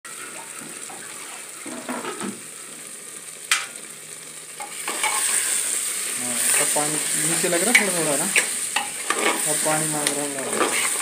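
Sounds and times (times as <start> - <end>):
curry sizzling in a pot: 0.0 - 11.0
metal ladle stirring and scraping: 4.6 - 5.6, 7.7 - 9.6, 10.4 - 11.0.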